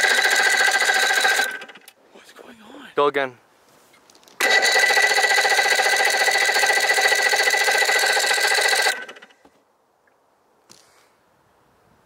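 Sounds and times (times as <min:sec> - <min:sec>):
starter cranking outboard motor: 0:00.0 - 0:02.0, 0:04.4 - 0:09.4.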